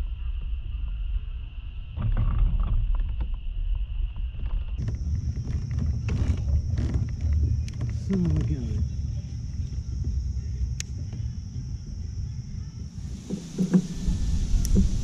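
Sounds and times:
high insect drone: 0:02.9 - 0:15.0
low rumbling noise: 0:04.8 - 0:15.0
sharp clicks: 0:10.6 - 0:11.2, 0:13.1 - 0:15.0.

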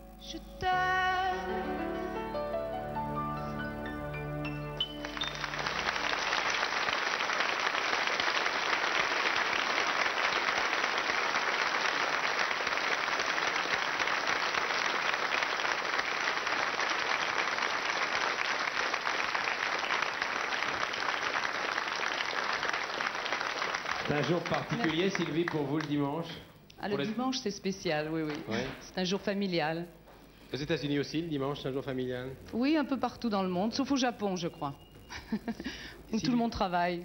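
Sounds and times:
audience applause: 0:04.5 - 0:26.1.

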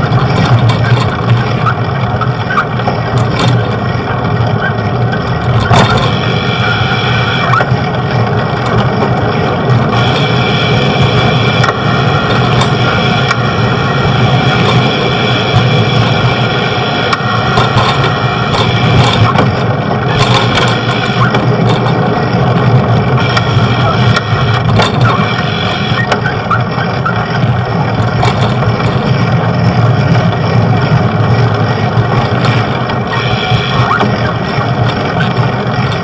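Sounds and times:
street traffic noise: 0:00.0 - 0:36.0.

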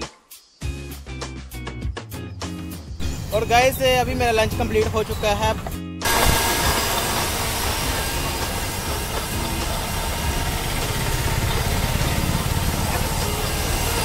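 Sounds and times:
electric blender running: 0:06.0 - 0:14.0.

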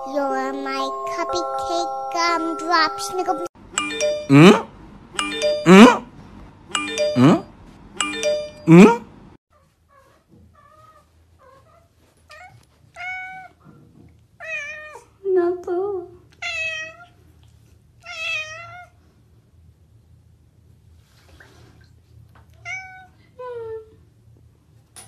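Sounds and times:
cat meowing: 0:10.0 - 0:13.6, 0:14.4 - 0:15.1, 0:16.4 - 0:17.2, 0:18.0 - 0:19.0, 0:22.6 - 0:23.2.

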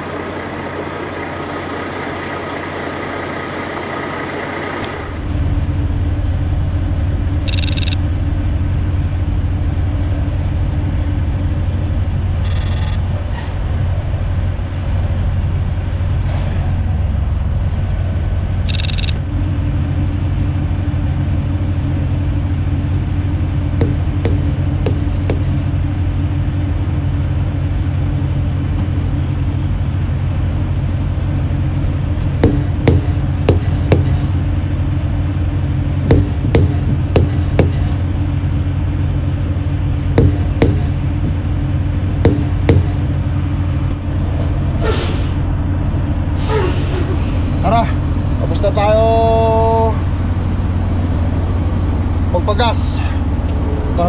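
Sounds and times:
diesel truck engines idling: 0:00.0 - 0:07.4.

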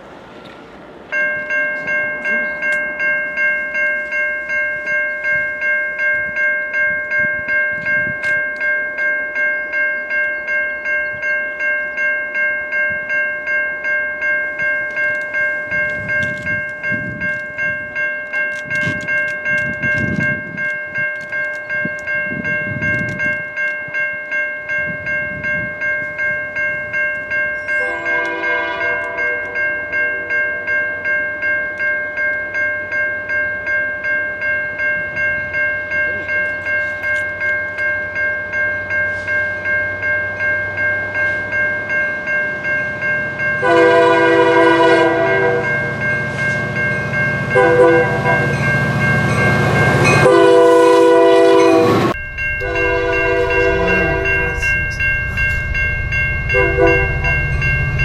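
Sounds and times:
level crossing bell ringing: 0:01.1 - 0:58.0
locomotive air horn: 0:27.8 - 0:29.6, 0:43.6 - 0:45.8, 0:47.6 - 0:48.5, 0:49.9 - 0:54.8, 0:56.5 - 0:57.6
low rumbling: 0:51.9 - 0:58.0.

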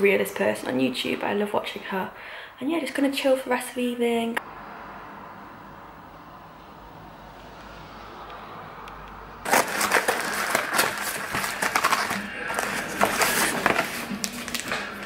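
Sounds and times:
cardboard box rustling and crackling: 0:09.5 - 0:15.0.

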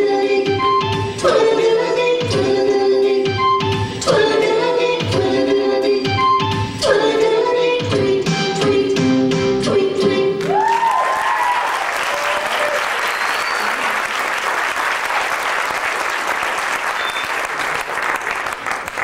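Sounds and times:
whoops: 0:10.4 - 0:14.0
audience clapping and cheering: 0:10.4 - 0:19.0.

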